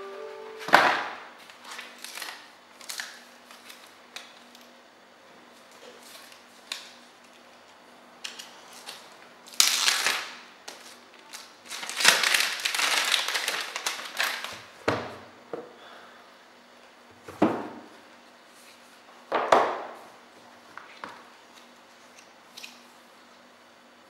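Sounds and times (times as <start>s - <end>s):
plastic wrapping tearing and crinkling: 1.4s - 4.7s, 8.3s - 14.7s.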